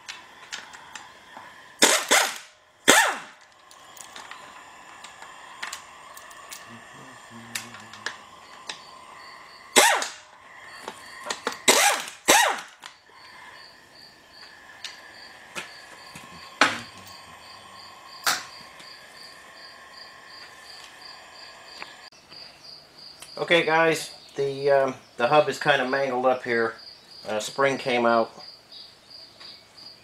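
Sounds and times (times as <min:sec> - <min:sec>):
cricket chirping: 0:00.0 - 0:30.0
pneumatic impact wrench bursts: 0:01.8 - 0:08.9, 0:09.7 - 0:12.9.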